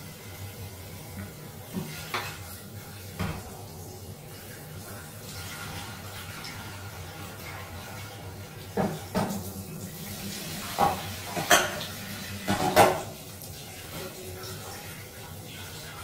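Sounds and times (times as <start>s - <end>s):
plates and dishes clinking: 10.7s - 13.2s.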